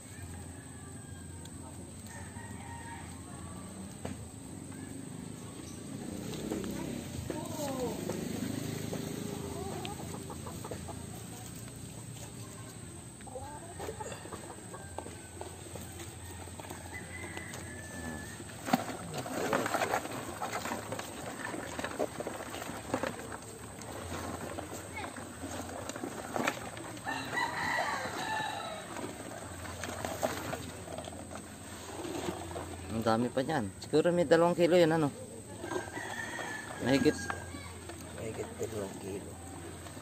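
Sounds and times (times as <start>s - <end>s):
rooster crowing: 0.0s - 4.0s, 13.4s - 18.9s, 26.4s - 29.6s, 35.4s - 37.8s
clicks and rustles in plastic bucket: 13.8s - 33.1s, 35.6s - 40.0s.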